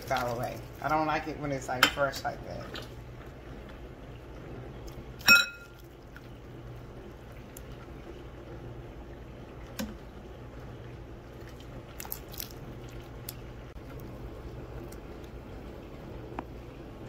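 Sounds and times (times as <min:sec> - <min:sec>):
metal ladle clinking against pot: 0:05.2 - 0:05.7.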